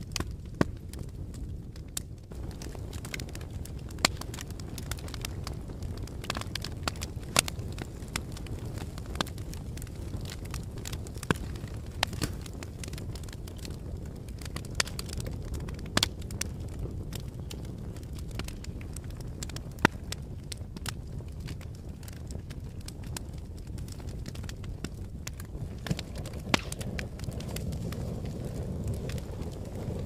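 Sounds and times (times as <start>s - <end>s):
campfire crackling and popping: 0.0s - 30.0s
steady low rumble: 22.4s - 30.0s.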